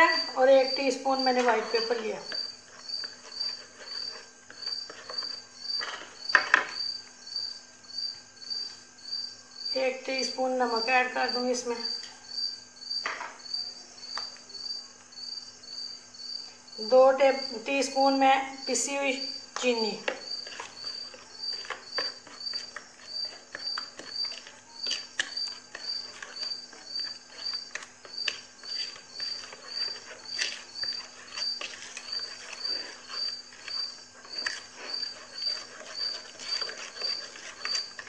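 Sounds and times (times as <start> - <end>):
high cricket-like chirp: 0.0 - 38.0
whisk beating dressing in glass bowl: 20.0 - 38.0.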